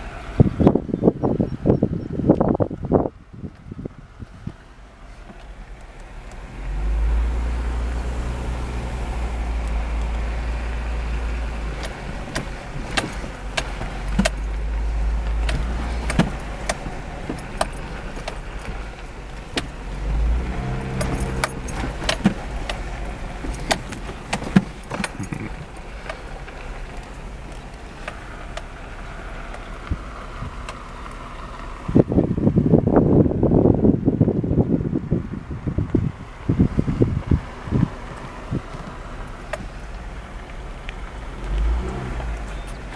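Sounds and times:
car driving on gravel: 0.0s - 42.9s
low engine rumble: 0.0s - 42.9s
sharp clicks and rattles: 9.5s - 31.2s.

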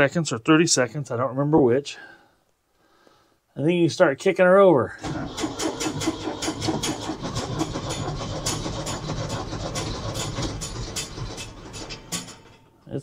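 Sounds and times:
diesel engine cranking: 5.0s - 12.8s.

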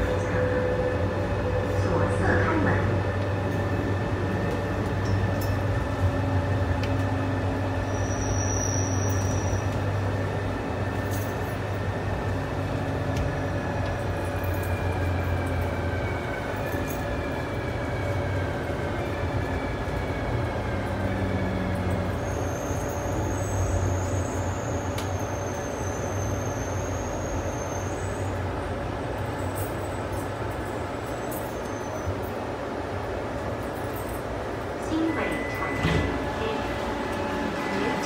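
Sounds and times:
train wheels rumbling on rail: 0.0s - 38.0s
train motor whine: 18.5s - 28.4s.

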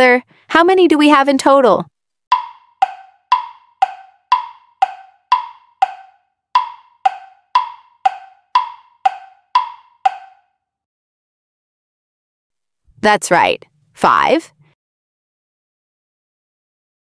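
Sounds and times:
wood block timer ticks: 2.3s - 10.5s.

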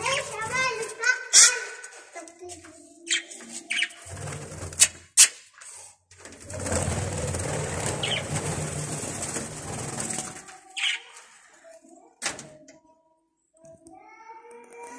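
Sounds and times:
wings flapping: 6.4s - 10.9s.

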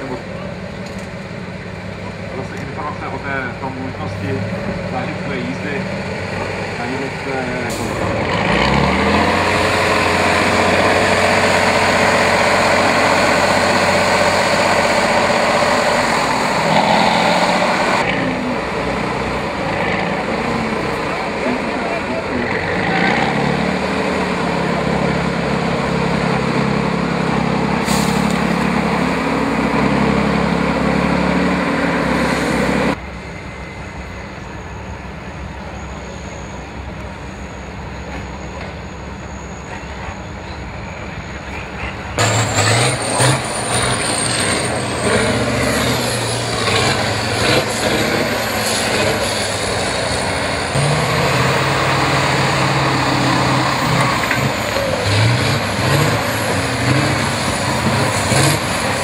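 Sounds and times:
truck diesel engines under load: 0.0s - 59.0s.

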